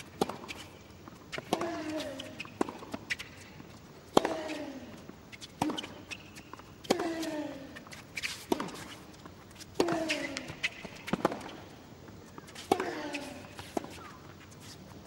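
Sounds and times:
racket striking tennis ball: 0.0 - 0.7, 5.5 - 7.4, 8.2 - 9.0, 12.5 - 14.2.

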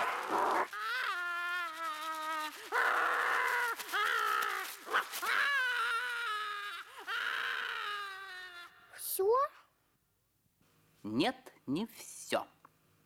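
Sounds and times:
cartoon dog whining: 0.0 - 8.7.

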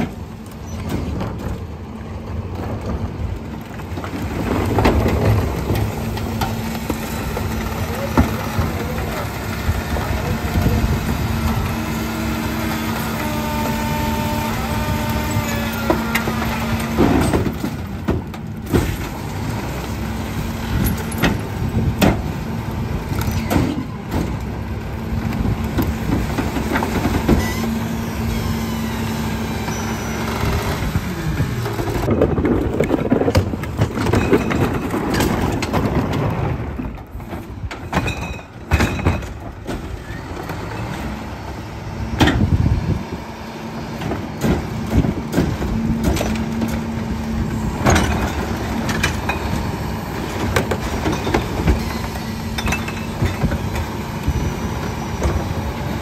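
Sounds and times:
garbage truck engine humming: 0.0 - 56.0
hydraulic packer compacting: 0.0 - 56.0
rattles and knocks from load: 15.2 - 19.3, 30.3 - 41.0, 43.9 - 54.4.

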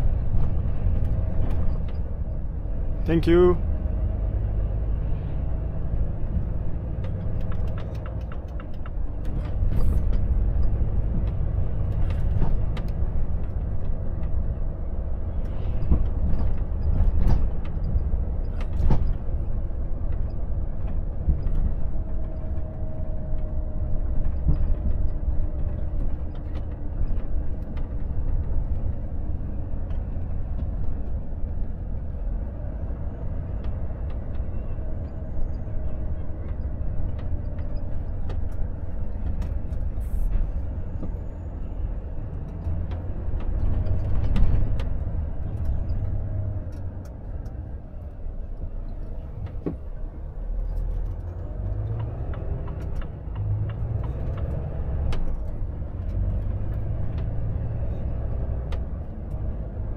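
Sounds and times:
truck diesel engine: 0.0 - 59.9.

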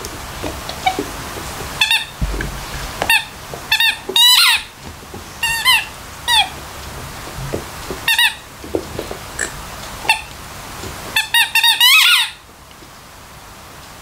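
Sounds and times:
dog chewing toy: 0.4 - 10.3
squeaky toy squeaking: 11.2 - 12.4.

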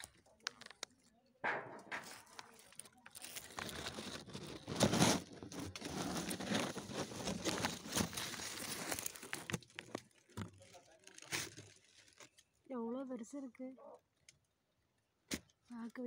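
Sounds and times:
twigs snapping: 0.0 - 12.5
leaves and twigs rustling: 1.8 - 12.6.

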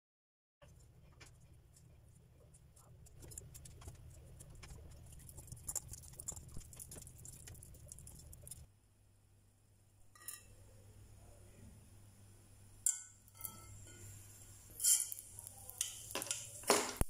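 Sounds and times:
wet crackles of squashed potatoes: 0.6 - 8.7
low steady hum: 0.6 - 16.6.

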